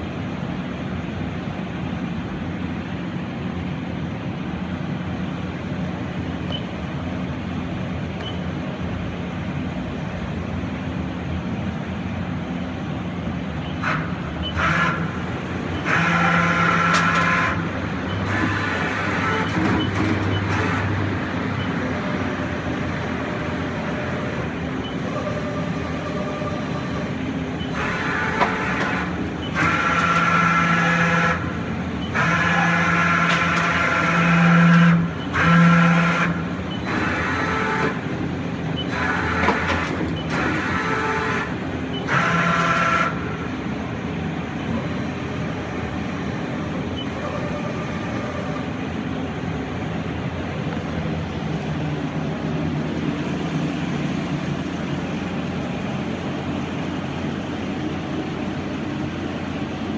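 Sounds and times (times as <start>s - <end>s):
machine hum: 0.0s - 59.9s
machine whining bursts: 13.5s - 50.6s.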